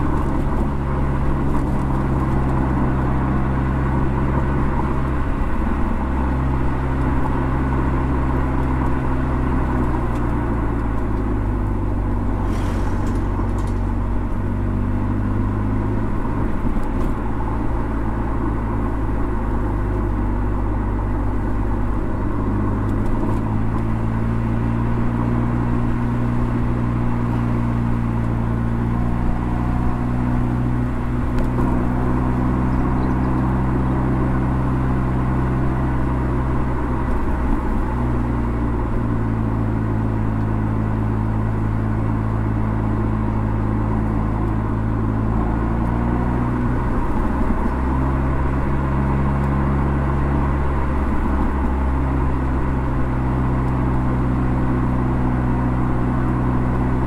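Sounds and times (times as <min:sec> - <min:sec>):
car engine running: 0:00.0 - 0:57.0
tyre and road rumble: 0:00.0 - 0:57.0.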